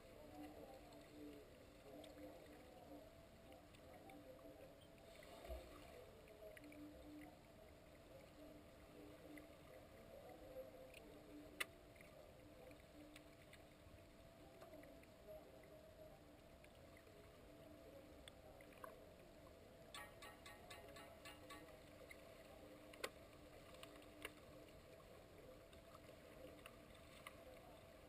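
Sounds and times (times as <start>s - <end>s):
underwater pool ambience: 0.0s - 28.0s
faint clicks: 10.9s - 13.7s, 19.9s - 22.2s, 22.8s - 25.0s.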